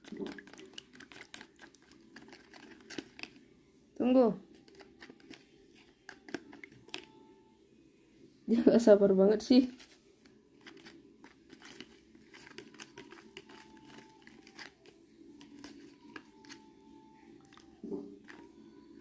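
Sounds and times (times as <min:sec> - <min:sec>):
plastic spoon scraping bowl: 0:00.0 - 0:03.4, 0:04.5 - 0:07.1, 0:09.8 - 0:16.8.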